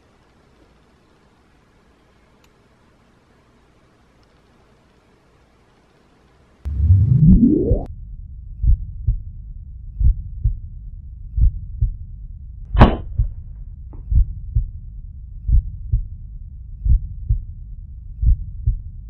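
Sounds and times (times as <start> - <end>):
heartbeat thumps: 8.6 - 9.3, 10.0 - 10.6, 11.3 - 12.0, 12.8 - 14.8, 15.4 - 16.2, 16.8 - 17.5, 18.2 - 19.0
sharp bright crack: 12.8 - 13.1.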